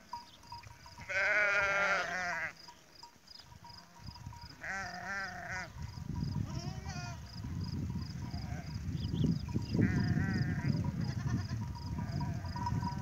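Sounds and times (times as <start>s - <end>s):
faint regular chirp: 0.0s - 1.0s
sheep and goats bleating: 0.0s - 13.0s.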